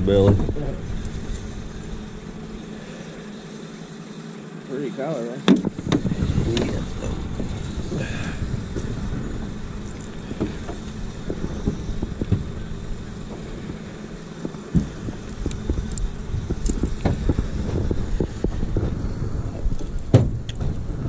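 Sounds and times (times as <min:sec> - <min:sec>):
steady low rumble: 0:00.0 - 0:03.2, 0:05.6 - 0:21.0
light knocks and clicks in boat: 0:00.2 - 0:01.6, 0:05.4 - 0:19.0
thump: 0:20.1 - 0:20.8.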